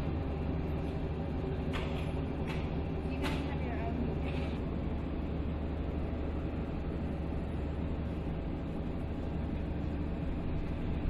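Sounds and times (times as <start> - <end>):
low machinery hum: 0.0 - 11.0.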